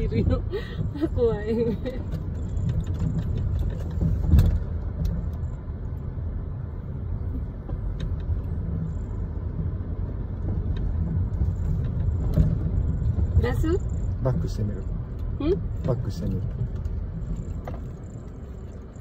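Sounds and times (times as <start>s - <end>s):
car engine and tyres rumbling: 0.0s - 19.0s.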